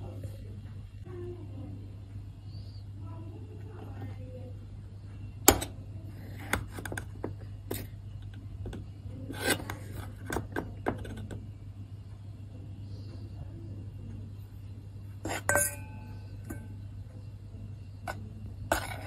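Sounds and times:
steady low hum: 0:00.0 - 0:19.0
metal spoon scraping and clinking: 0:09.3 - 0:10.2, 0:15.2 - 0:16.8, 0:18.1 - 0:19.0.

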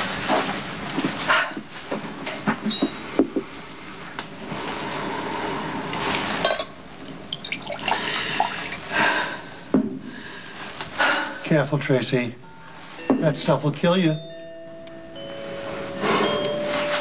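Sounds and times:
drink pouring into glass: 0:07.0 - 0:08.9.

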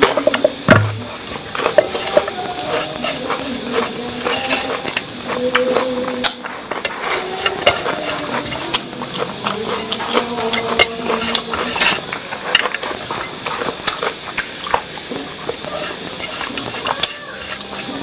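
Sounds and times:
fingers tapping metal tray: 0:00.0 - 0:12.8
wet chewing and slurping: 0:00.0 - 0:18.0.

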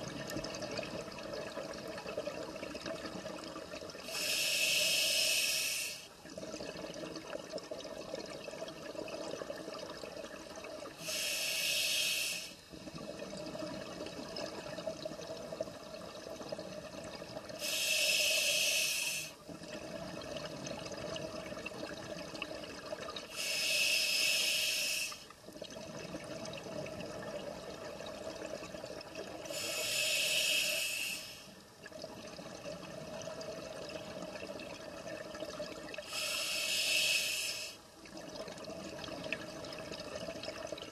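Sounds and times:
exhaled bubbles bursting: 0:19.5 - 0:23.3.

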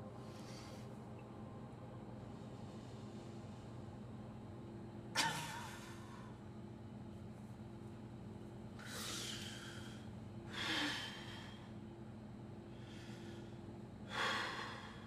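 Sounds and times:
man breathing heavily: 0:00.0 - 0:01.0, 0:08.8 - 0:11.9, 0:12.6 - 0:15.0
steady low hum: 0:00.0 - 0:15.0
man gasping: 0:12.8 - 0:15.0.

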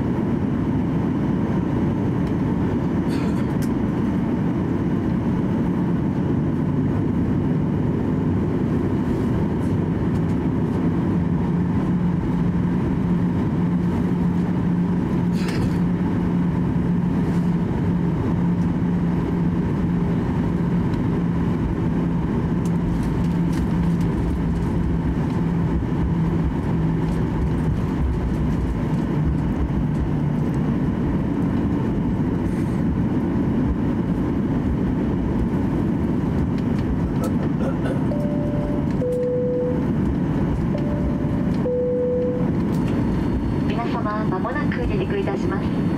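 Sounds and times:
aircraft cabin drone and rumble: 0:00.0 - 0:45.9
humming tone: 0:37.1 - 0:43.7.

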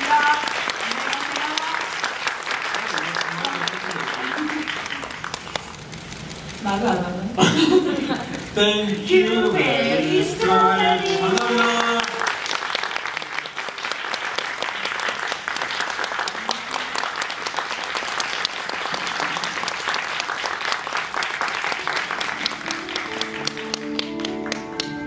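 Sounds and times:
audience applauding: 0:00.0 - 0:07.0, 0:07.6 - 0:25.0
faint band music: 0:22.2 - 0:25.0.

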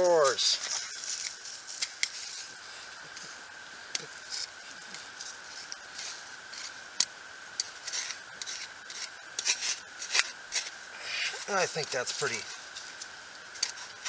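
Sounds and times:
hand tool scraping clay soil: 0:04.0 - 0:14.0.

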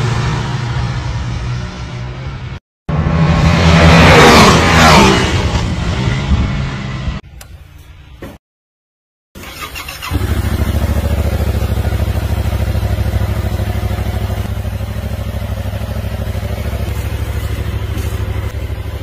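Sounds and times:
motorcycle engine starting and idling: 0:09.4 - 0:19.0.

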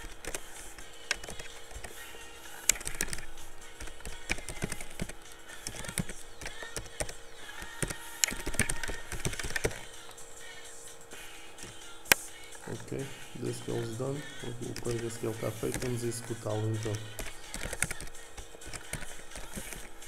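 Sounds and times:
keyboard typing clicks: 0:00.0 - 0:02.0, 0:02.6 - 0:10.2, 0:14.7 - 0:19.9.

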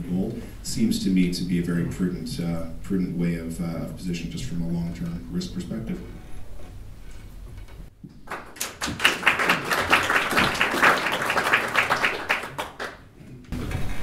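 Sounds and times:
audience applauding: 0:08.2 - 0:13.1.

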